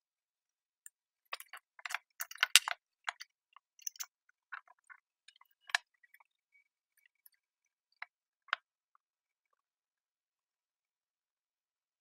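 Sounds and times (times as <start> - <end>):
metal parts clicking and clinking: 1.3 - 3.2, 3.8 - 5.8.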